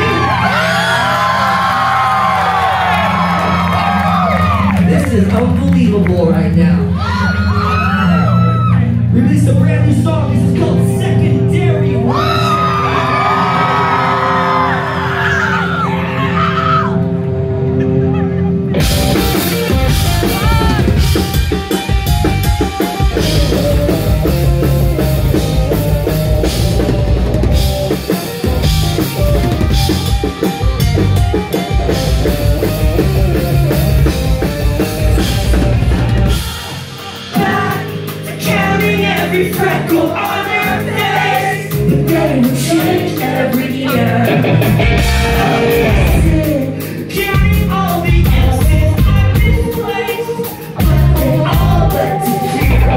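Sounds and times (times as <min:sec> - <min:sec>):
rock band playing loud: 0:00.0 - 0:52.9.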